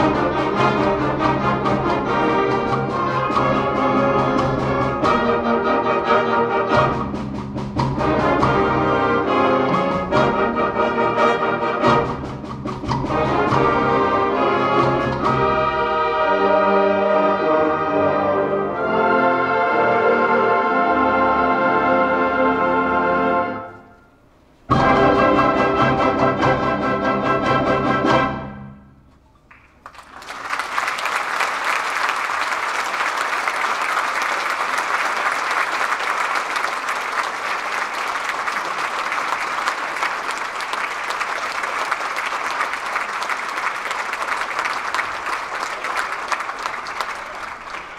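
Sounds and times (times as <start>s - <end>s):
audience applause: 29.5s - 47.9s.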